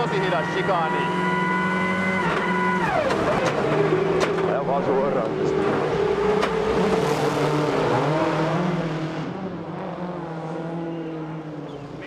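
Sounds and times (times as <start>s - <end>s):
rally car engine at high revs: 0.0s - 12.0s.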